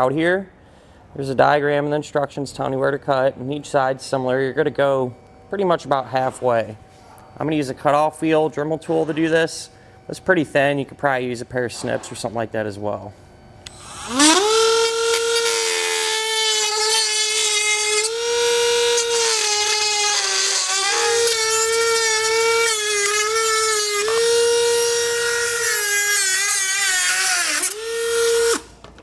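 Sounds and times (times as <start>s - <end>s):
rotary tool cutting plastic: 13.7s - 28.7s.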